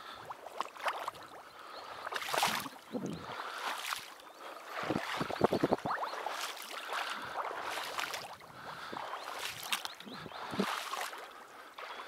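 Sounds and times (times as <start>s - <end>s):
marsh water splashing: 0.0s - 12.0s.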